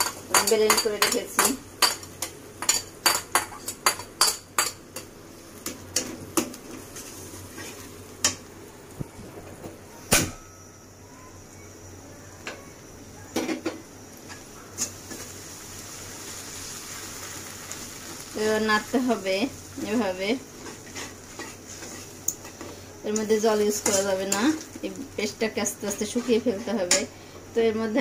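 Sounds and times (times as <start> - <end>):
metal spatula clinking on pan: 0.0 - 5.1, 23.2 - 24.6
food sizzling in oil: 0.0 - 9.2, 10.7 - 28.0.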